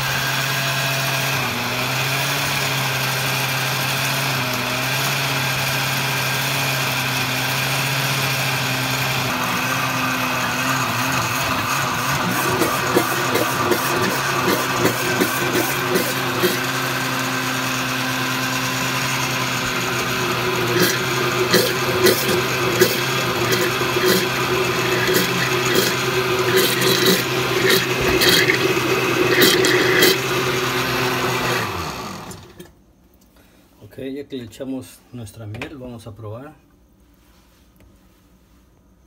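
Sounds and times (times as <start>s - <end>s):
blender motor running: 0.0s - 32.7s
blender jar clicking: 19.6s - 32.7s.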